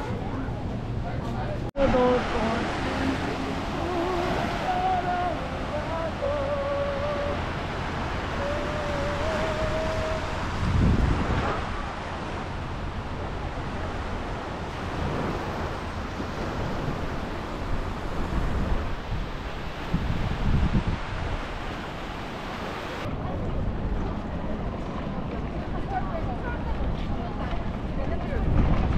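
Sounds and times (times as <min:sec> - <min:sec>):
small waves breaking on sand: 0:01.8 - 0:23.1
wind buffeting microphone: 0:07.0 - 0:28.9.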